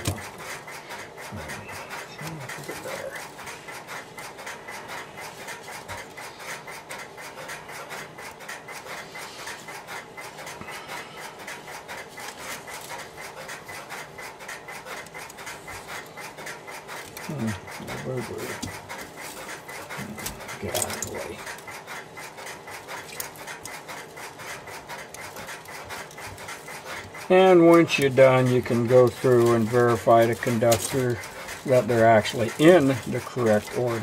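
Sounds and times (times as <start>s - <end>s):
wires scratching and rustling: 0.0s - 34.0s.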